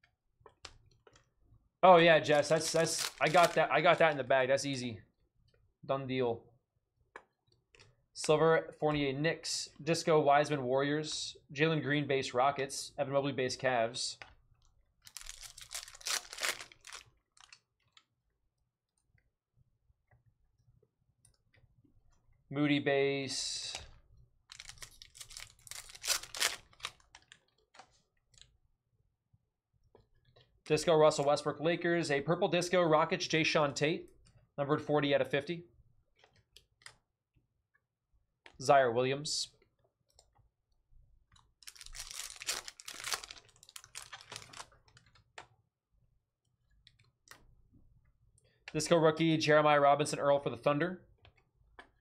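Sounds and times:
wrapper crinkling and clicking: 2.3 - 4.2, 15.0 - 18.1, 23.7 - 28.5, 41.6 - 45.5.

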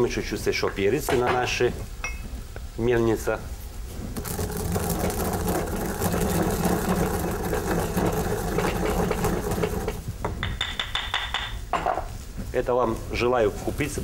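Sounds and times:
pestle grinding peppercorns: 4.1 - 11.3.

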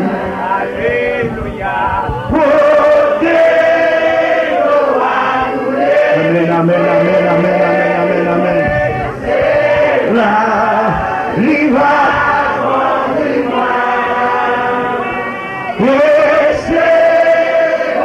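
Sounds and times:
man singing a hymn: 0.0 - 5.2, 5.8 - 9.1, 10.0 - 12.8, 13.4 - 18.0.

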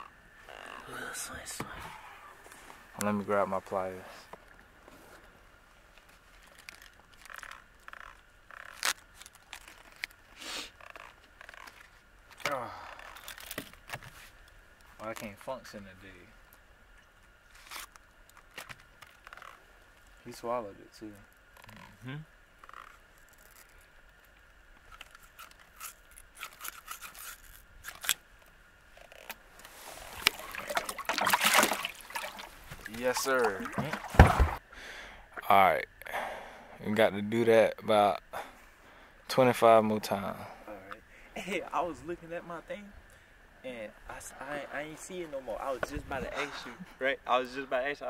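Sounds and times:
rustle: 0.0 - 48.0
handling clicks and scrapes: 24.8 - 28.2.

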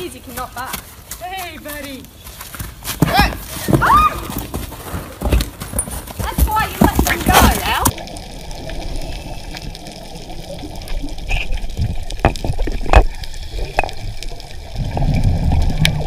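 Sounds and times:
muffled underwater rush: 7.9 - 16.0.

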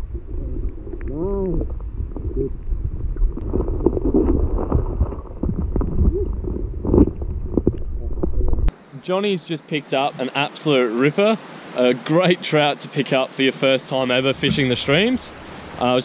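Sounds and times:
muffled underwater stream rumble: 0.0 - 8.7, 14.1 - 15.9.

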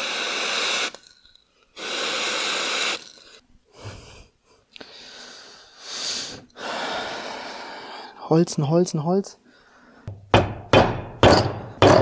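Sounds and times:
aerosol spray hissing: 0.0 - 1.2, 1.8 - 3.3.

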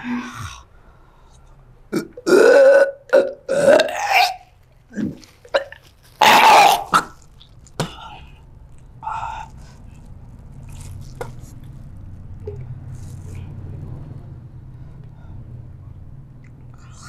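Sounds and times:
man retching and coughing: 1.9 - 7.2.

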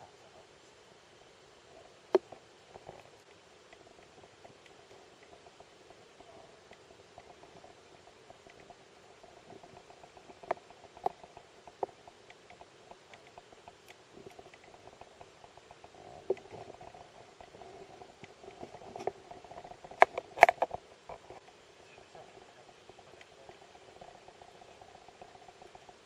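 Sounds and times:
steady underwater hum: 0.0 - 26.0
diving gear clicks and knocks: 9.5 - 21.6.

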